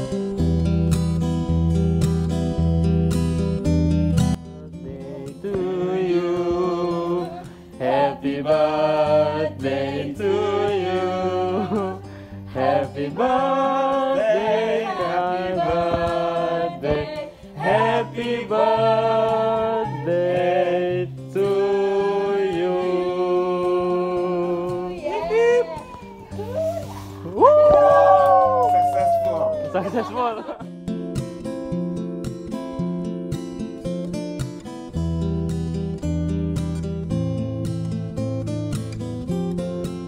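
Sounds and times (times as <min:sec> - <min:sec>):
voices singing together: 0:04.8 - 0:26.6.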